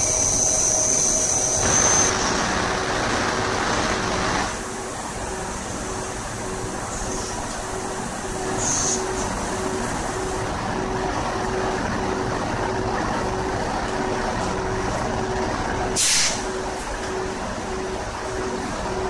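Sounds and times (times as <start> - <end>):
locomotive machinery hum: 0.0 - 19.0
compressed air burst hissing: 16.0 - 16.4.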